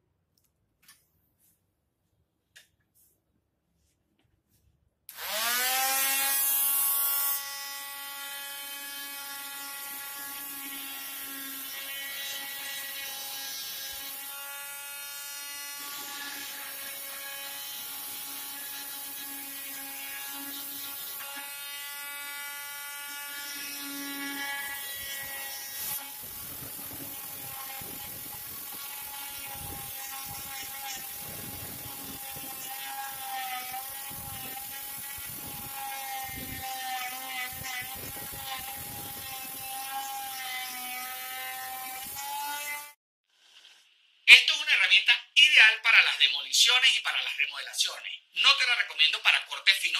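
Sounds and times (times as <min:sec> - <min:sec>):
multi-tool motor whining: 0:05.1 - 0:43.0
saw blade rasping into wood: 0:23.3 - 0:43.0.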